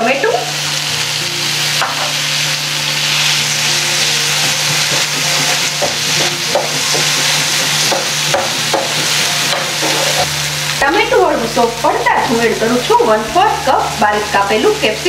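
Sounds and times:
vegetables sizzling in butter: 0.0 - 15.0
wooden spatula scraping a pan: 4.3 - 10.3.

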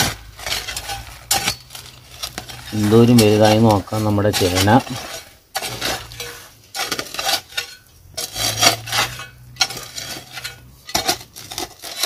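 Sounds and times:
hoe chopping into dry soil: 0.0 - 7.6, 8.2 - 12.0.

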